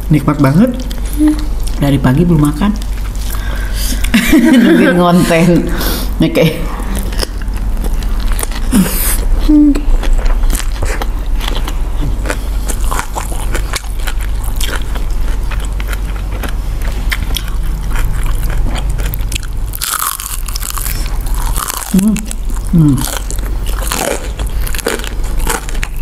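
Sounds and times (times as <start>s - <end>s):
chewing and lip smacking: 6.9s - 26.0s
crunchy bite: 10.0s - 26.0s.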